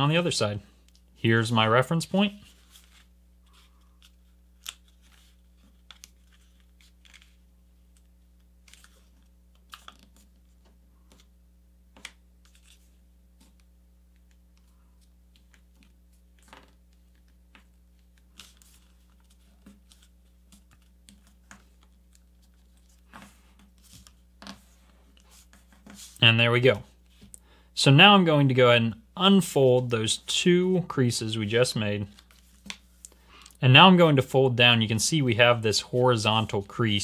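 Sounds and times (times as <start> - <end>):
faint low hum: 0.0 - 37.0
paper crinkling and folding: 2.0 - 11.3, 12.0 - 13.6, 14.6 - 26.2, 32.0 - 33.5.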